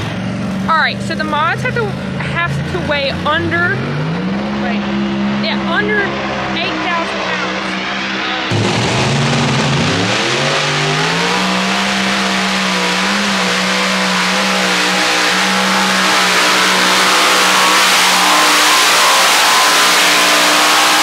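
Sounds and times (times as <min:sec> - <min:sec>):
tractor engines at full throttle: 0:00.0 - 0:21.0.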